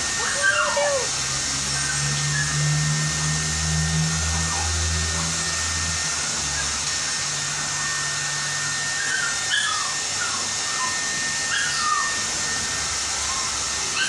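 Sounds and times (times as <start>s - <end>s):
pet dryer blowing: 0.0s - 14.0s
dog whining: 0.1s - 1.2s, 8.5s - 12.6s, 13.2s - 14.0s.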